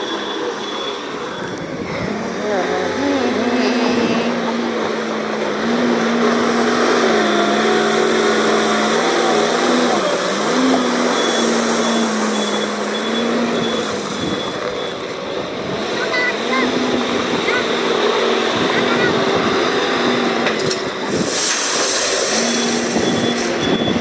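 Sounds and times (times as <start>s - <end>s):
wheel loader diesel engine: 0.0s - 24.0s
faint high beeping: 11.1s - 15.0s.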